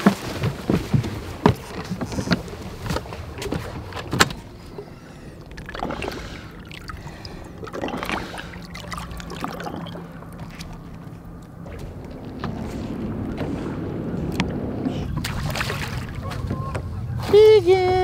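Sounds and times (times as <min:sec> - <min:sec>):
footsteps and knocks on boat deck: 0:00.0 - 0:04.9, 0:09.6 - 0:15.6
water sloshing: 0:00.0 - 0:18.0
faint steady hum: 0:01.9 - 0:18.0.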